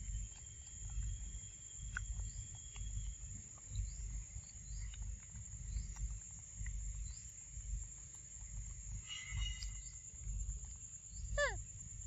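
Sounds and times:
high insect drone: 0:00.0 - 0:12.0
low thumps and rumble: 0:00.0 - 0:12.0
monkeys chewing and smacking: 0:00.1 - 0:07.0.

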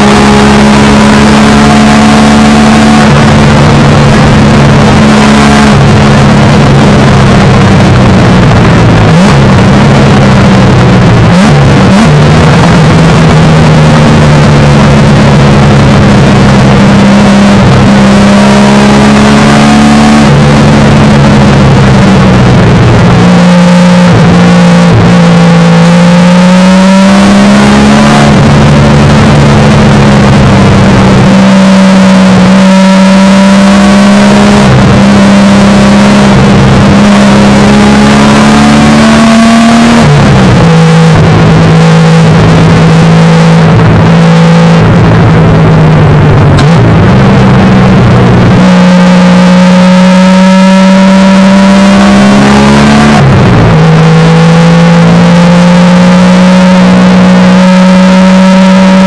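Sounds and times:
car engine running hard: 0:00.0 - 0:59.0.

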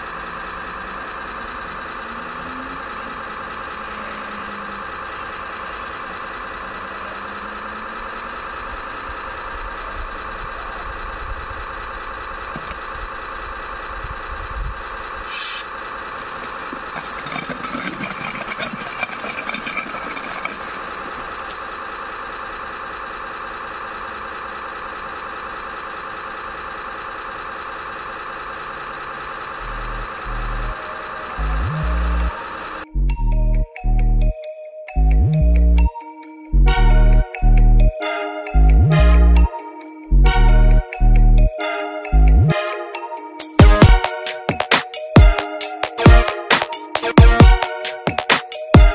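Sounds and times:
model loader engine drone: 0:00.0 - 0:43.3
gravel rattling and scraping: 0:16.2 - 0:21.8
music: 0:32.9 - 0:48.9.

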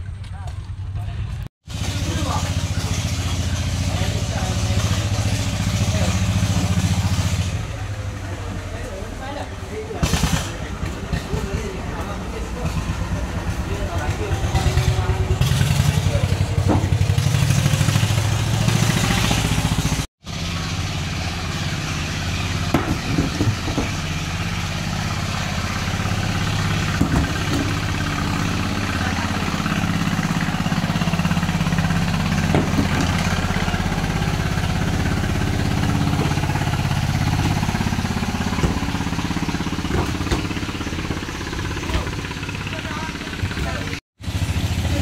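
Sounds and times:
boat engines humming: 0:00.0 - 0:45.0.

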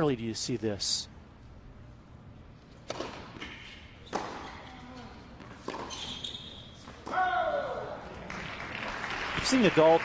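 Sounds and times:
tennis ball pops with echo: 0:02.8 - 0:03.4.

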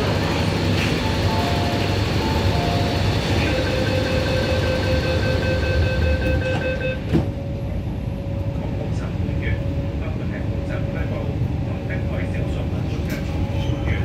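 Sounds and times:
low train rumble: 0:00.0 - 0:14.0
rapid warning beeping: 0:01.0 - 0:07.1
train doors thumping shut: 0:06.2 - 0:07.4.

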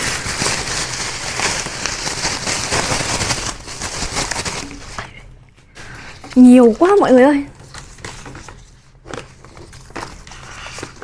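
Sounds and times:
plastic bag crinkling: 0:00.0 - 0:05.2.

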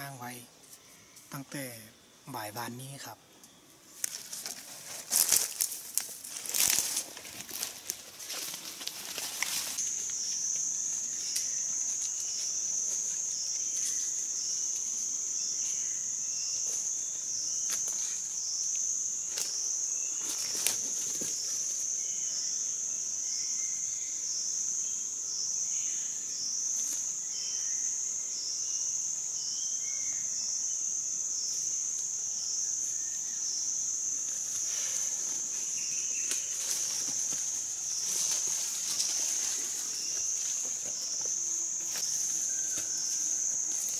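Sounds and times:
high-pitched insect drone: 0:00.0 - 0:43.9
leaves and twigs snapping underfoot: 0:04.0 - 0:10.7, 0:20.2 - 0:21.4, 0:36.2 - 0:41.0.

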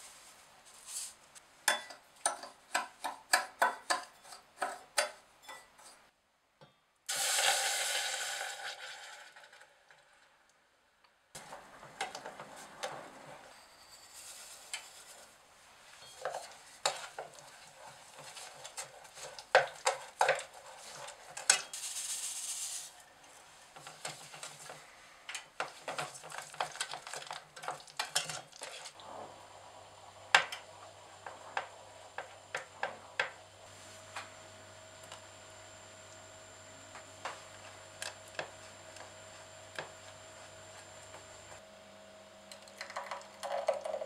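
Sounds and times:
sugar pouring: 0:07.1 - 0:09.4
spatula stirring puree in a pot: 0:14.0 - 0:21.7.

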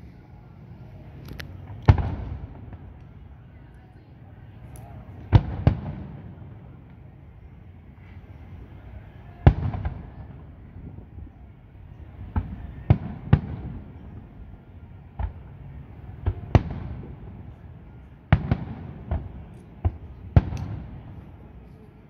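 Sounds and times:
low continuous rumble: 0:00.0 - 0:22.0
distant firework booms: 0:01.6 - 0:03.0, 0:12.1 - 0:14.4, 0:18.3 - 0:21.2.

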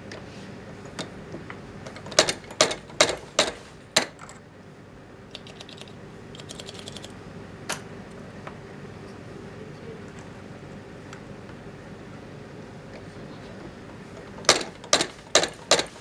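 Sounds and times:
metal parts rattling: 0:05.3 - 0:07.1
metal parts knocking in press: 0:14.4 - 0:16.0.

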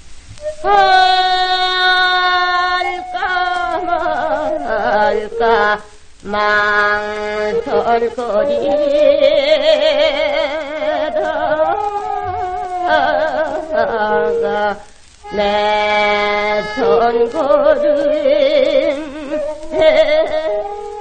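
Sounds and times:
person singing folk song with vibrato: 0:00.4 - 0:21.0.

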